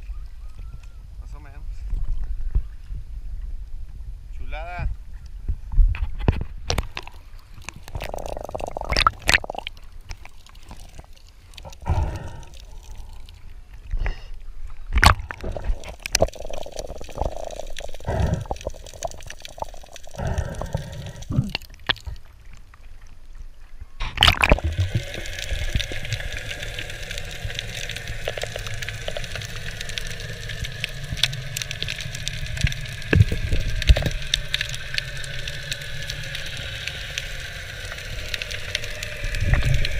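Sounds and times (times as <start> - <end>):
water sloshing and gurgling: 5.9 - 39.9
underwater hiss and hum: 6.7 - 23.2, 24.0 - 39.9
knocks and splashes: 14.9 - 16.3, 24.0 - 25.1.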